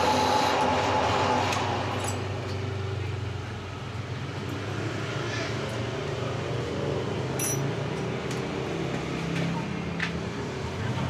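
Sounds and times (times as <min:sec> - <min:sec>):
metal lathe humming: 0:00.0 - 0:03.2.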